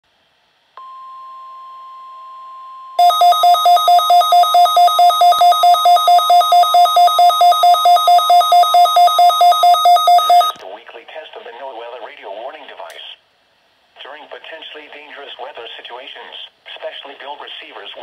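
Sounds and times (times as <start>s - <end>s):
faint steady alarm tone from radio: 3.0s - 10.6s
rapid beeping alarm: 3.0s - 10.6s.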